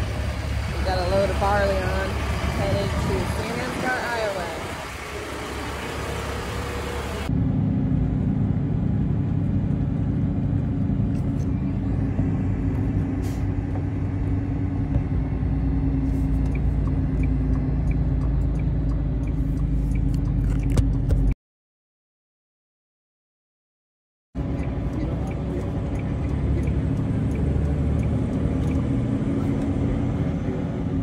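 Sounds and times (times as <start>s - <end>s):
diesel truck engine drone: 0.0s - 21.4s, 24.4s - 31.0s
faint regular ticking: 16.4s - 21.1s, 24.4s - 29.0s.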